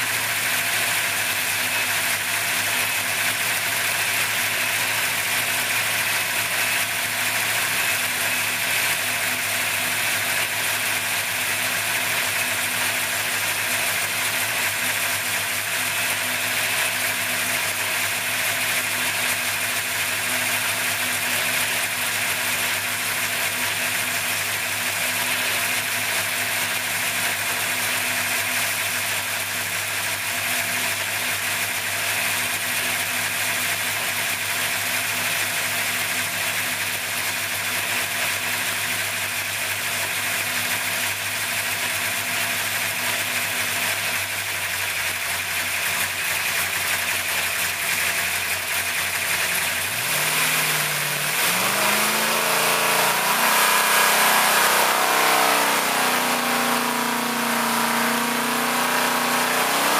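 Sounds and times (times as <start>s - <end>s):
engine idling: 0.0s - 59.9s.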